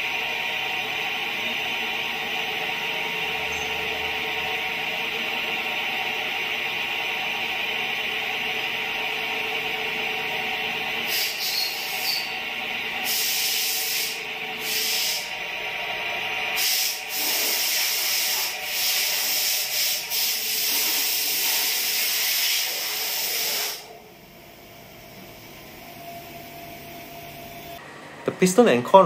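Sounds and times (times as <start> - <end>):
faint hum: 23.9 - 29.0.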